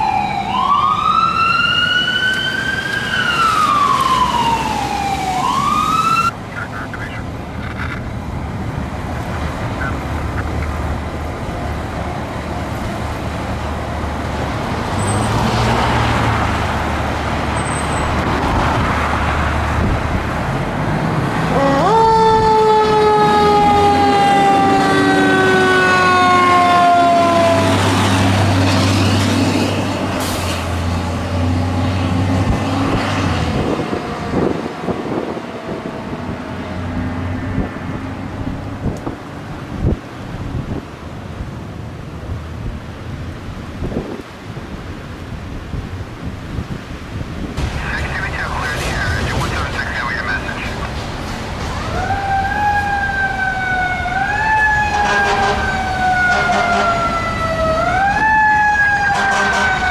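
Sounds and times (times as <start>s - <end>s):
siren blast winding down: 0.0s - 6.3s, 21.5s - 27.9s, 51.7s - 59.9s
truck engine rumbling: 2.0s - 59.9s.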